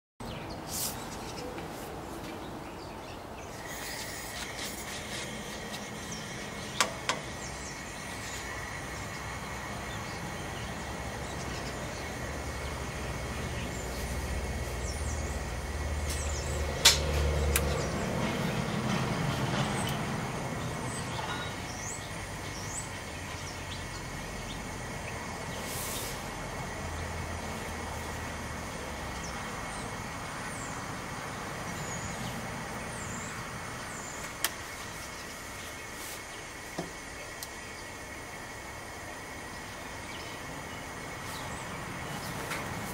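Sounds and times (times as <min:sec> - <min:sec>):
vehicle rumbling past: 0:00.2 - 0:35.9, 0:37.6 - 0:42.9
birds chirping: 0:00.2 - 0:42.9
sharp clicks: 0:16.8 - 0:17.8.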